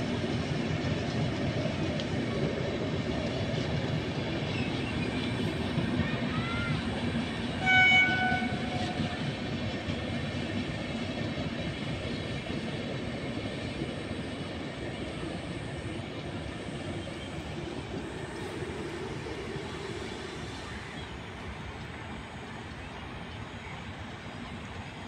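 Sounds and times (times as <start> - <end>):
train wheels rumbling on track: 0.0 - 25.0
train horn blast: 7.5 - 9.1.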